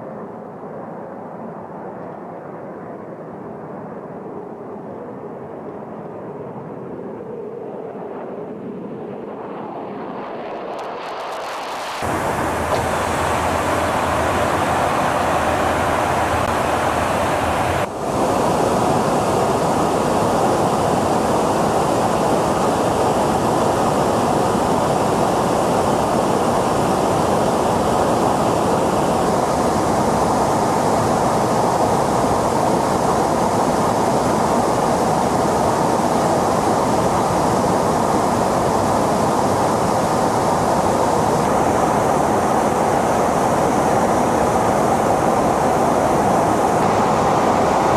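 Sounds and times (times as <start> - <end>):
airflow and jet engines rushing: 0.0 - 47.9
low hum: 12.0 - 33.3.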